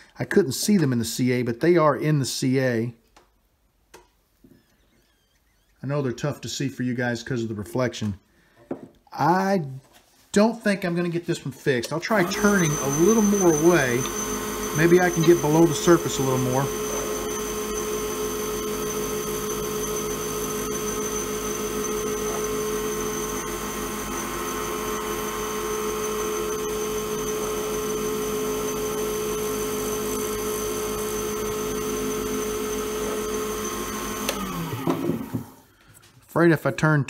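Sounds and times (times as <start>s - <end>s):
wood lathe whining: 12.0s - 35.7s.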